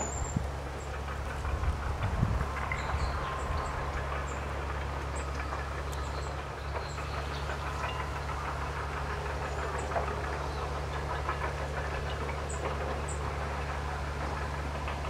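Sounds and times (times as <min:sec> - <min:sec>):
low mechanical hum: 0:00.0 - 0:15.0
high-pitched bird calls: 0:02.6 - 0:08.6.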